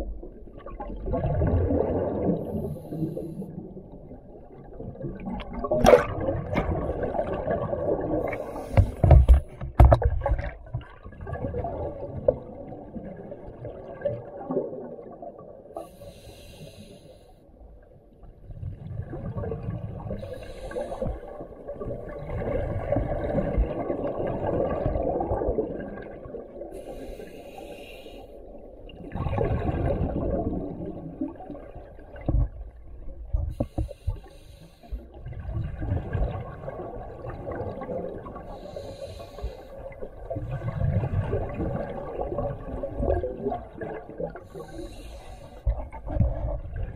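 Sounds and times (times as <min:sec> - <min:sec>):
exhaled bubbles rushing: 0:00.0 - 0:08.6, 0:10.0 - 0:15.5, 0:18.5 - 0:26.7, 0:28.9 - 0:33.4, 0:35.2 - 0:38.6, 0:39.8 - 0:44.8, 0:45.7 - 0:46.9
scuba regulator inhale hiss: 0:02.5 - 0:03.4, 0:08.3 - 0:09.1, 0:15.8 - 0:17.4, 0:20.2 - 0:21.4, 0:26.7 - 0:28.5, 0:33.6 - 0:35.0, 0:38.5 - 0:39.8, 0:44.4 - 0:45.7.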